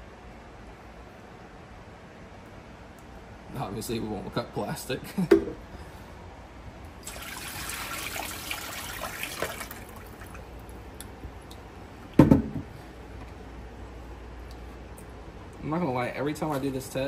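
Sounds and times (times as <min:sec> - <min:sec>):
liquid pouring through strainer: 0:07.0 - 0:10.5.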